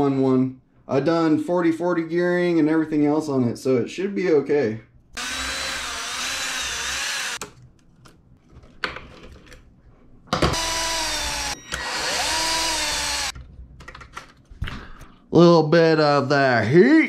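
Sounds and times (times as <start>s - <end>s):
cordless drill driving screws: 5.2s - 7.4s, 10.5s - 13.4s.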